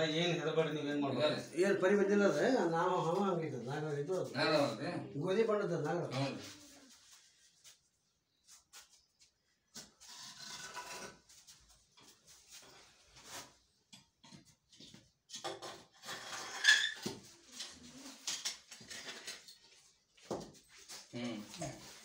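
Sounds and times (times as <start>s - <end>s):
pole scraping and knocking on bricks: 9.8s - 12.2s, 14.2s - 17.3s.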